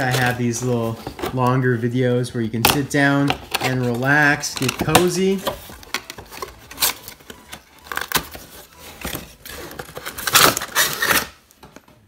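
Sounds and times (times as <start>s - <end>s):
packaging ripping: 4.6s - 11.4s.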